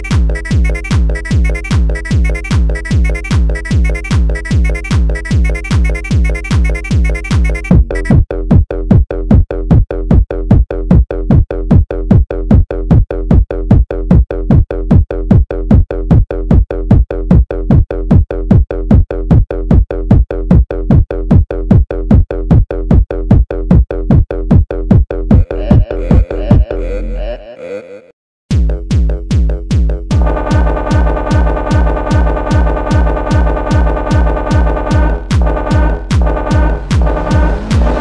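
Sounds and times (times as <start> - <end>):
drum machine kick drum pounding: 0.0 - 26.8, 28.5 - 38.0
low bass: 7.7 - 27.4, 28.5 - 38.0
synth layers: 30.1 - 38.0.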